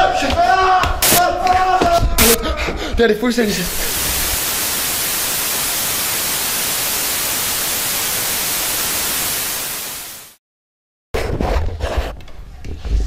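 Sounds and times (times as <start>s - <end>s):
television static hiss: 3.5s - 10.4s.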